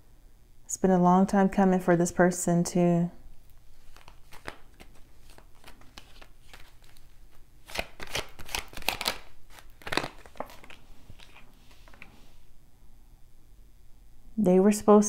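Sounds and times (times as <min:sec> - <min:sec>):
cards being shuffled: 0:03.7 - 0:12.3.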